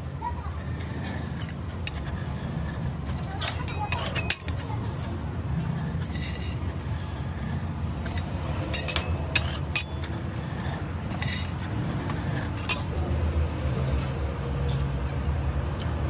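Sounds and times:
metal spatula scraping steel pan: 0.6 - 12.9.

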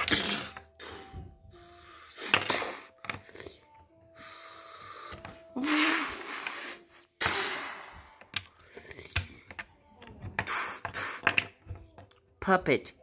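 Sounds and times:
plastic bricks clicking on a table: 8.2 - 10.5, 11.2 - 12.2.

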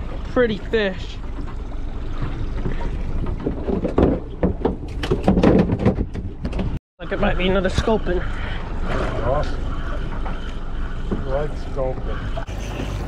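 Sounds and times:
water noise: 0.0 - 5.4, 6.3 - 13.0
wind: 0.0 - 13.0
knocks and clatter on deck: 2.6 - 6.8.

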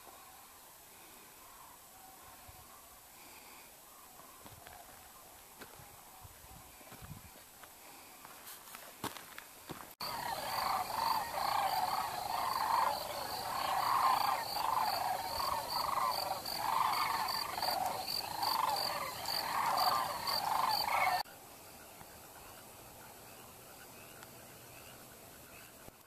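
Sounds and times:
chorus of wild animals calling: 10.0 - 21.2.

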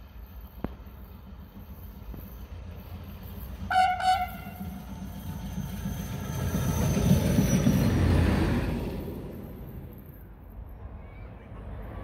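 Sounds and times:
rail vehicle engine and wheels: 0.0 - 12.0
rail vehicle horn toots: 3.7 - 4.8.

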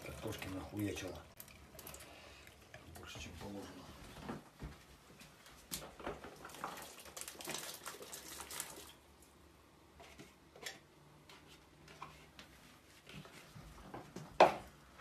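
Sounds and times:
potatoes splashing into liquid: 6.2 - 9.2.

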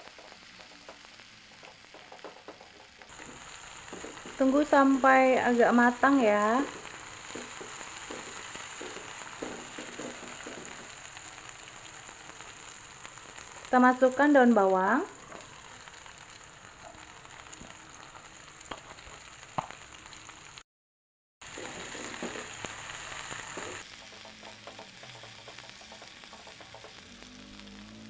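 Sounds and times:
food sizzling in hot oil: 0.0 - 20.6, 21.4 - 28.0.

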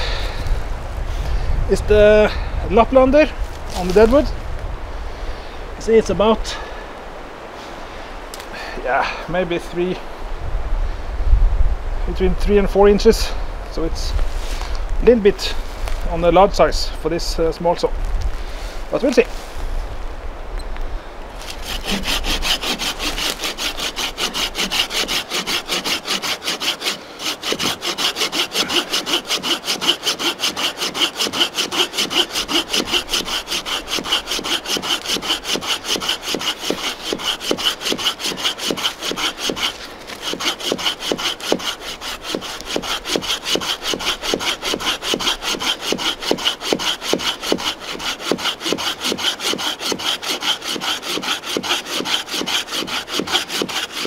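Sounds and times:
hand saw cutting log: 3.6 - 4.3, 21.4 - 54.0.

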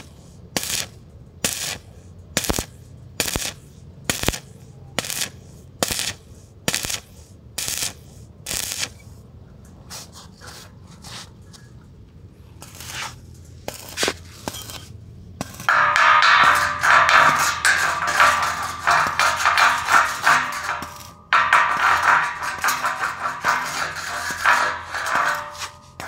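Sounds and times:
rhythmic scraping strokes: 15.4 - 26.0.

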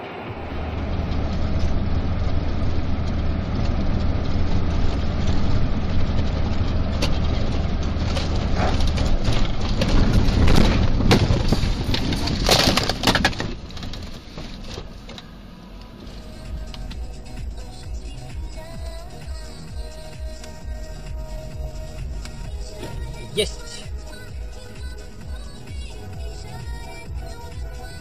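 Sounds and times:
car road rumble: 0.0 - 28.0
vehicle collision crunching: 0.2 - 19.6.

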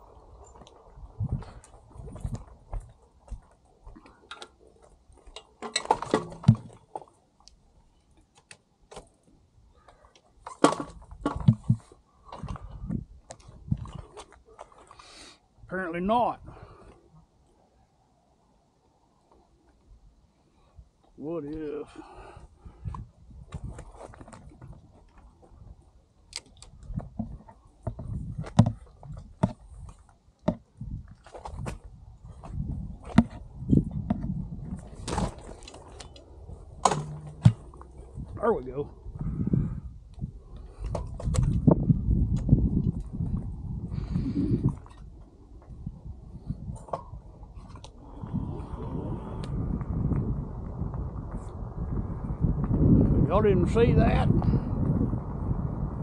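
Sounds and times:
bike knocking and scraping: 0.4 - 7.2, 9.8 - 14.9, 26.5 - 38.4.

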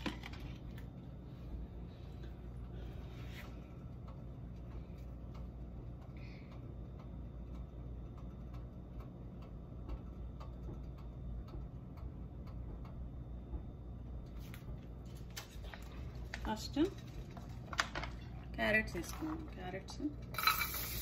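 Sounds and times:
steady low hum: 0.0 - 21.0
oil ticking and clicking: 3.6 - 15.0.

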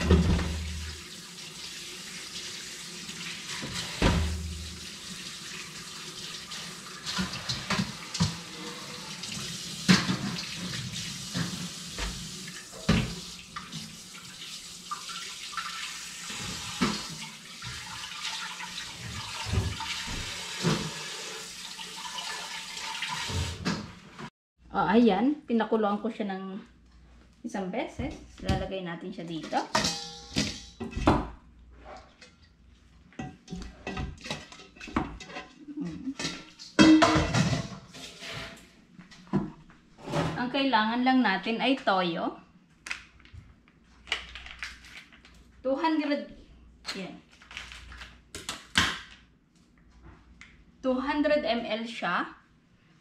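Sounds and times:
metal pot knocking: 29.6 - 31.0.

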